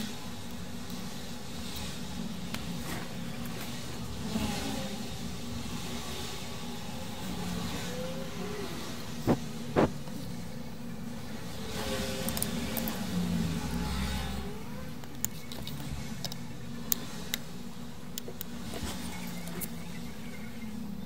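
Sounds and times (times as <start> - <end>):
low background hum: 0.0 - 21.0.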